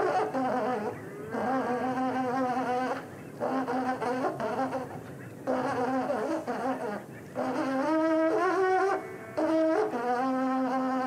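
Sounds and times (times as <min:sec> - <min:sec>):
buzzy horn-like held notes: 0:05.5 - 0:11.0.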